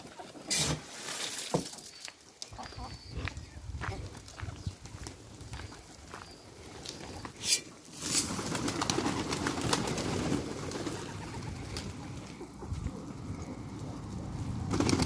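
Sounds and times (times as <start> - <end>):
pigeons wing flapping: 8.0 - 12.2, 14.6 - 15.0.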